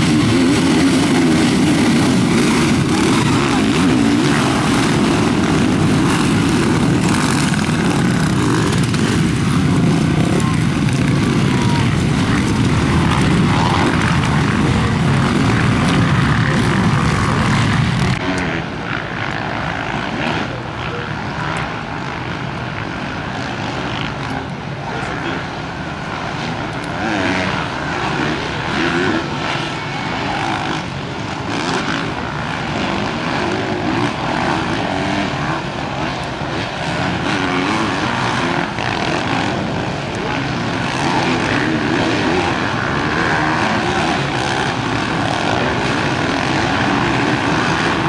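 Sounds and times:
distant motocross engines revving: 0:00.0 - 0:48.0
motocross engines running hard: 0:00.0 - 0:48.0.

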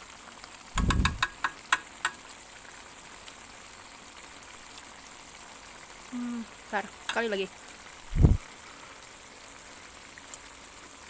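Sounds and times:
filling simmering in wok: 0:00.0 - 0:11.0
sharp clicks: 0:00.8 - 0:02.2.

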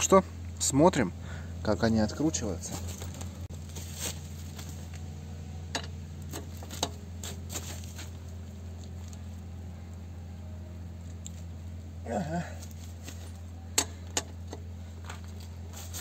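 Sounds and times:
steady low hum: 0:00.0 - 0:16.0
metal wheel brace clinks: 0:05.7 - 0:07.0.

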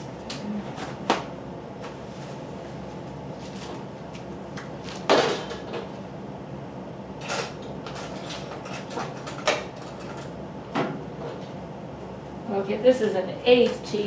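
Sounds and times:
steady low hum: 0:00.0 - 0:14.0
kitchen things knocking and clattering: 0:05.1 - 0:05.8.

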